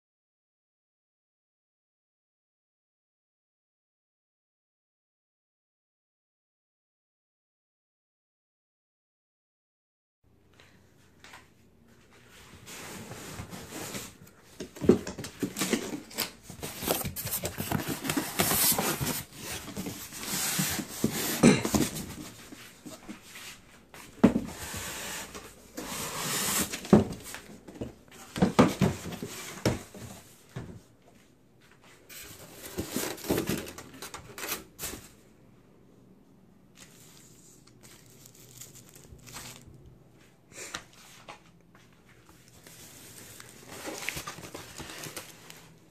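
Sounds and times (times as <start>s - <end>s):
cardboard scraping and rustling: 12.5s - 23.2s, 24.2s - 30.8s, 32.1s - 35.2s, 42.6s - 45.9s.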